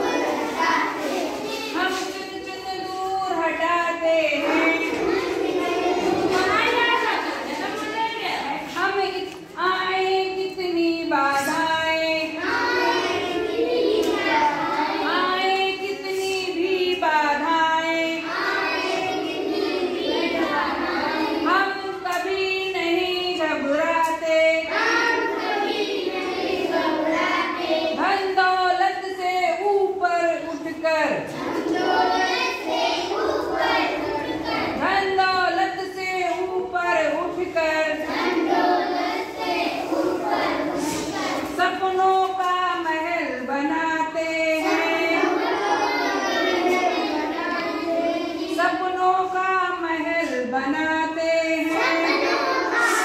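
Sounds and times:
children singing together: 0:00.0 - 0:02.1, 0:04.4 - 0:08.0, 0:12.2 - 0:15.4, 0:18.1 - 0:21.6, 0:24.6 - 0:28.1, 0:31.3 - 0:34.9, 0:37.8 - 0:41.6, 0:44.5 - 0:48.8, 0:51.6 - 0:53.0.

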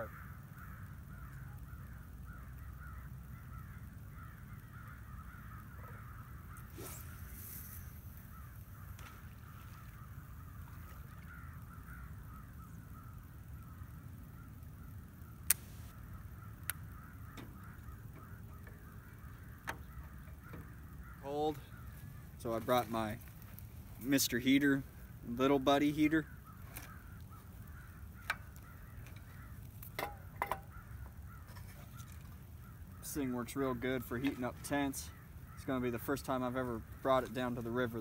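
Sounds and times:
distant flock of birds calling: 0:00.0 - 0:38.0
sharp clicks: 0:15.4 - 0:15.9.

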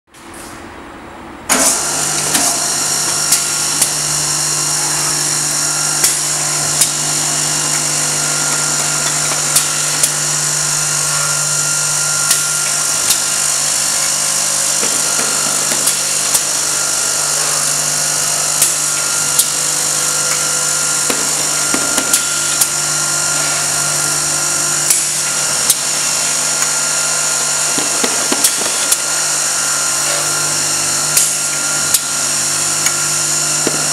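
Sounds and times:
sharpening machine motor hum: 0:01.5 - 0:33.9.

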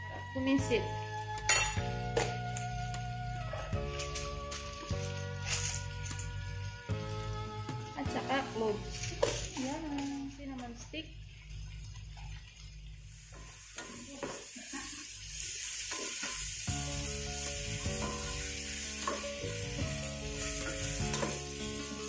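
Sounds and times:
background music: 0:00.0 - 0:10.6, 0:16.5 - 0:22.0
food sizzling in oil: 0:00.3 - 0:22.0.

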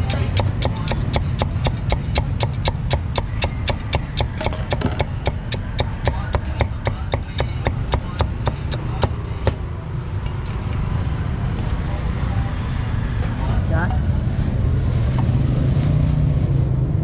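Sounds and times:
meat cleaver chopping on wood: 0:00.0 - 0:09.6.

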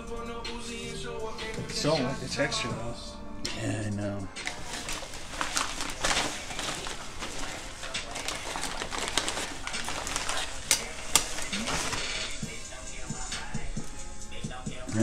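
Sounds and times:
paper mailer crinkling: 0:04.4 - 0:12.6.

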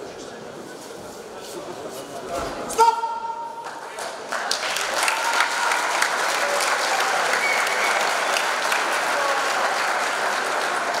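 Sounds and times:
crowd applauding: 0:03.6 - 0:11.0.

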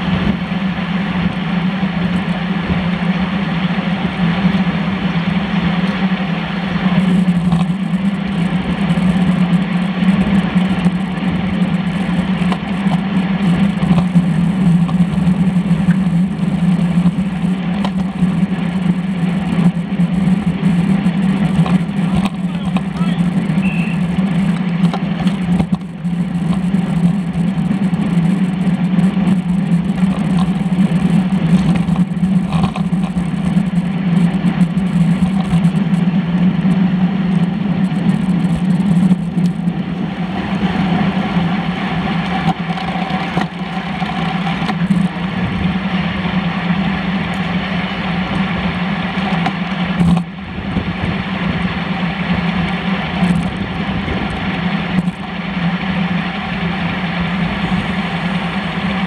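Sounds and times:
road rumble: 0:00.0 - 0:59.0
wind rush: 0:39.6 - 0:59.0.

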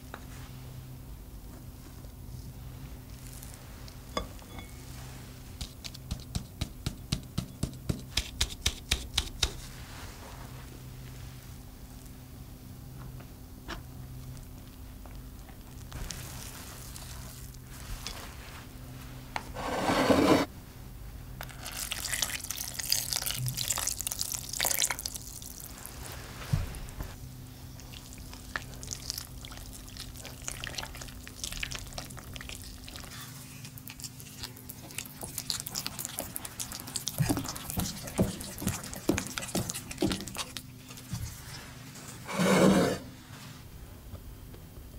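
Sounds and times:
milk pouring into a bowl: 0:21.7 - 0:25.7.

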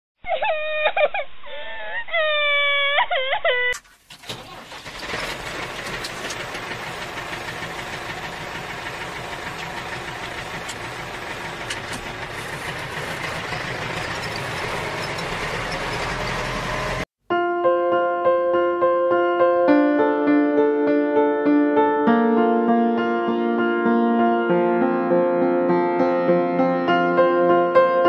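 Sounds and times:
tractor engine chugging: 0:03.9 - 0:17.0.

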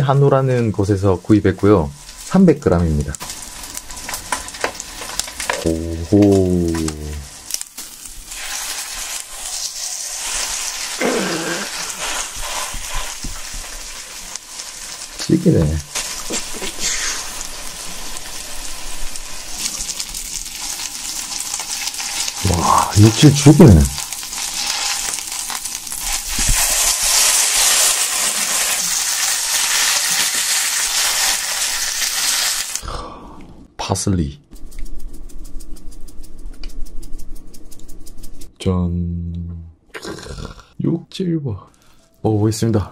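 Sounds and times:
steak sizzling on griddle: 0:03.2 - 0:05.6, 0:06.5 - 0:32.8
vocal exclamation: 0:05.6 - 0:07.2, 0:11.0 - 0:11.9, 0:22.4 - 0:23.8, 0:39.9 - 0:40.8.

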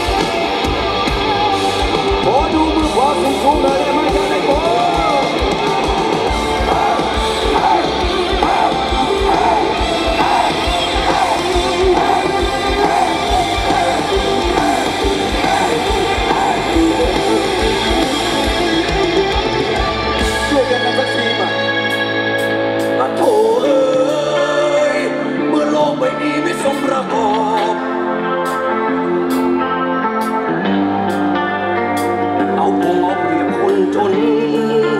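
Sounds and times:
live rock band playing: 0:00.0 - 0:34.9
person singing: 0:06.5 - 0:18.6, 0:22.9 - 0:28.1, 0:32.2 - 0:34.9.

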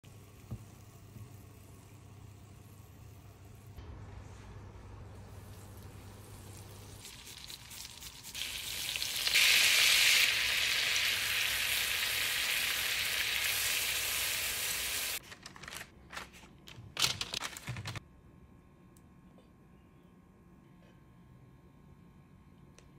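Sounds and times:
butter and garlic sizzling in pan: 0:05.4 - 0:15.2.

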